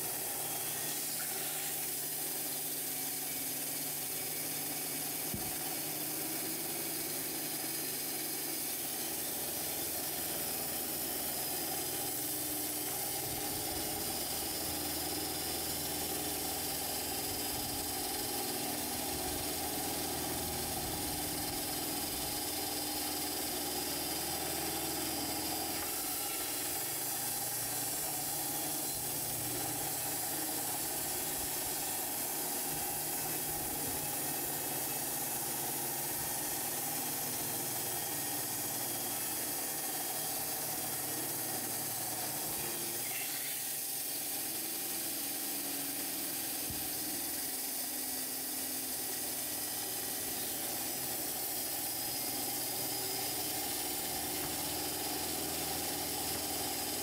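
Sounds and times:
band saw cutting through log: 0.0 - 57.0.

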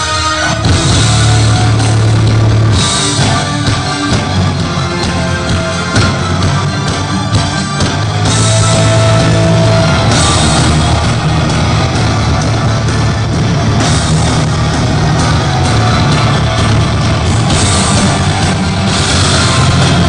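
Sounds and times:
live metal band playing: 0.0 - 20.0.

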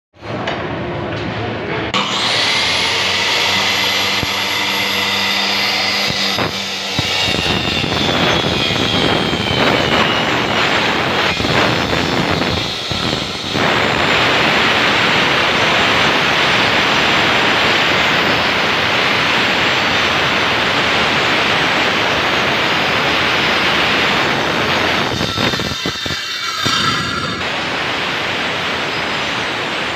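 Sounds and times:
saw cutting plywood: 2.0 - 21.9, 22.5 - 28.1
circular saw motor whine: 2.0 - 29.9.

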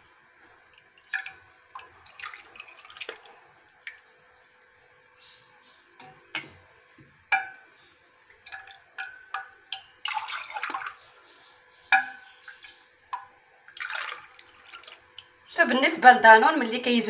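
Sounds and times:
metal ladle clinking on pot: 6.0 - 6.6, 11.9 - 12.3.

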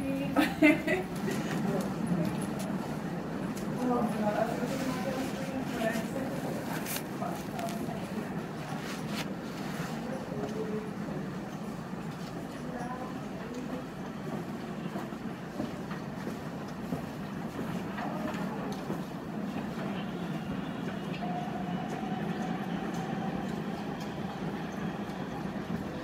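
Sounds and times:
subway train rumbling on track: 0.0 - 26.0.

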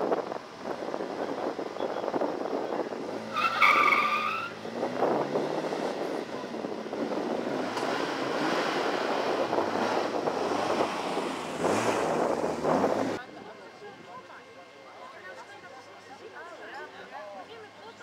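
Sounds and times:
car engine at full throttle: 0.0 - 13.5
tyre squeal: 3.3 - 4.6.

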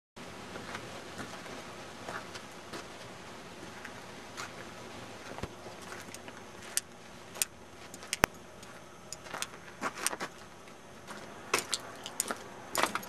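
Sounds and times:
footsteps crunching on snow: 0.6 - 6.8, 7.8 - 13.0.

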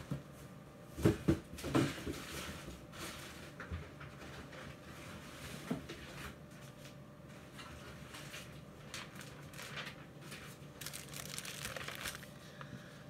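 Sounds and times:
packaging rustling and knocking: 10.8 - 12.3.

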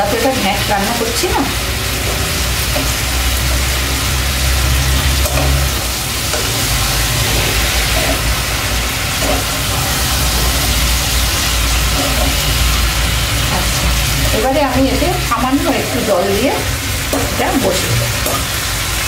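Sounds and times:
food sizzling: 0.0 - 19.0
spatula scraping pan: 1.6 - 16.2.

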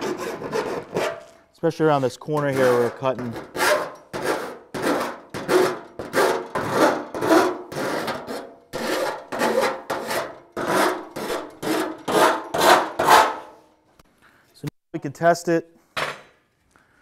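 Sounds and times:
file scraping metal edge: 0.0 - 1.4, 2.0 - 13.6.

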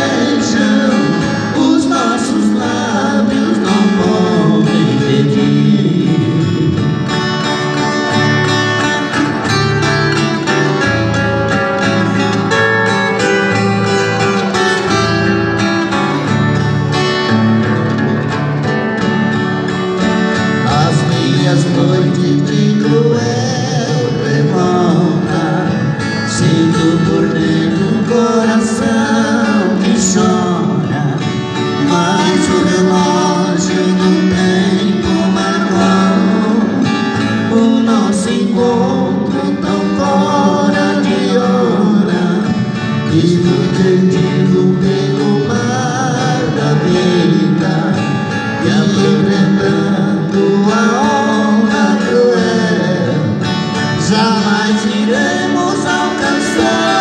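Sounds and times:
men singing together: 0.0 - 7.2, 20.3 - 57.0
acoustic guitars playing country: 0.0 - 57.0.

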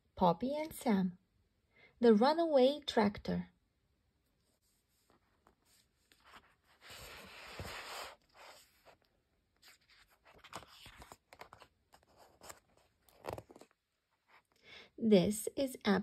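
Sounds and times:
paper rustling: 4.5 - 14.5
book pages turning: 4.6 - 14.5
page flip: 5.0 - 13.8.

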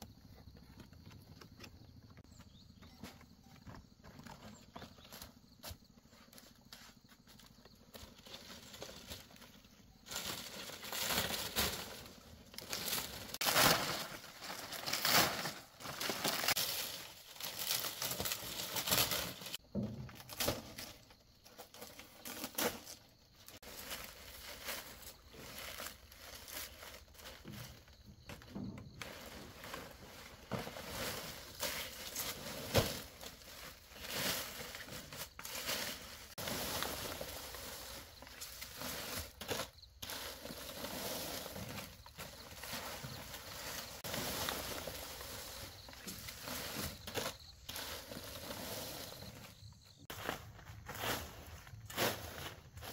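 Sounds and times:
palm fronds rustling and crackling: 6.1 - 52.9.

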